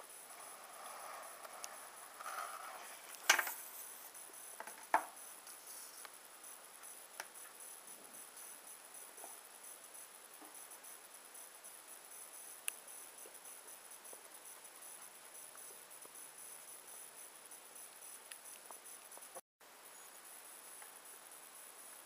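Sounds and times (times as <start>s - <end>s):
high-pitched hiss: 0.0s - 22.0s.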